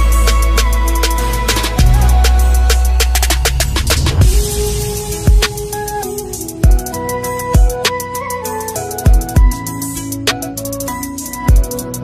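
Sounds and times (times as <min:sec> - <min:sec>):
hi-hat ticks: 0:00.0 - 0:12.0
kick drum hits: 0:05.3 - 0:05.6, 0:06.6 - 0:06.8.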